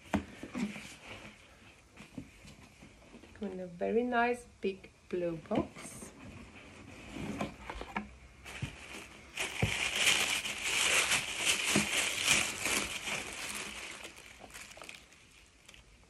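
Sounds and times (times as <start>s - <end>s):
wrapping rustling and crinkling: 6.0s - 16.0s.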